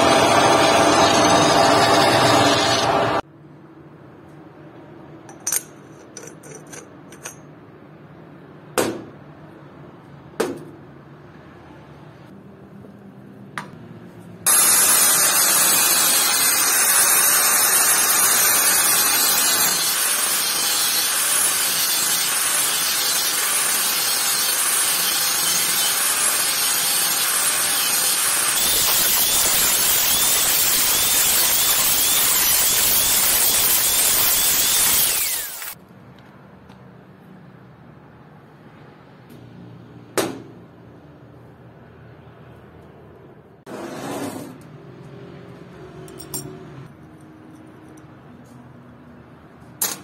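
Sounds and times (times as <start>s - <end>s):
angle grinder cutting steel: 0.0s - 3.2s, 14.5s - 35.8s
metal parts clicking: 5.3s - 7.5s.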